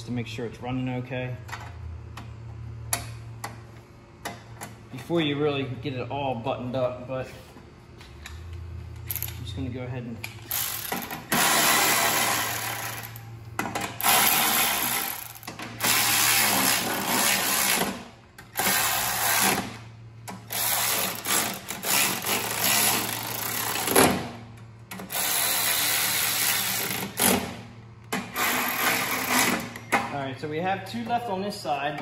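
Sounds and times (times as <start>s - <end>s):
electric ratchet whirring: 10.3s - 13.3s, 14.0s - 24.2s, 24.9s - 27.5s, 28.2s - 29.8s.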